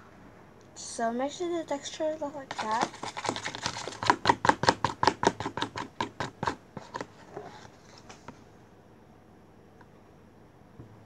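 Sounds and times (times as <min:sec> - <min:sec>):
plastic spoon scraping a plastic tub: 0:02.4 - 0:08.4.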